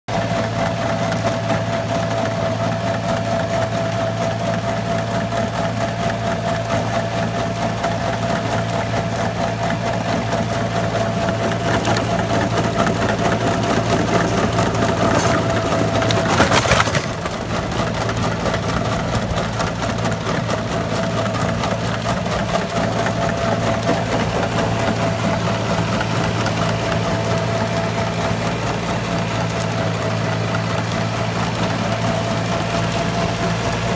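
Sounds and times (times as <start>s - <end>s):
rotavator churning soil: 0.1s - 33.9s
tractor diesel engine: 0.1s - 33.9s.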